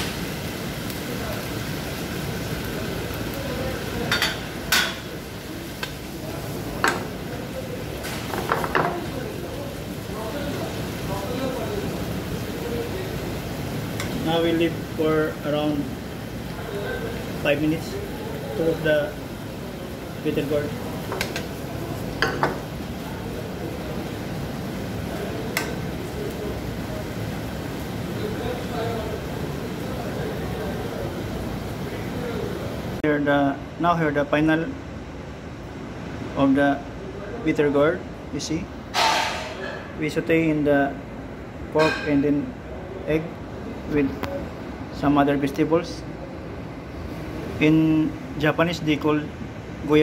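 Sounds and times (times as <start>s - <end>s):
gas burner and ventilation noise: 0.0s - 50.0s
metal spoon clanking on frying pan: 4.1s - 5.1s, 21.1s - 21.5s.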